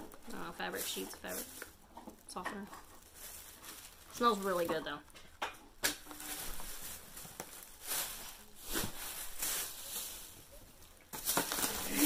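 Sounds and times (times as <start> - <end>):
rustling and handling noise: 0.0 - 12.0.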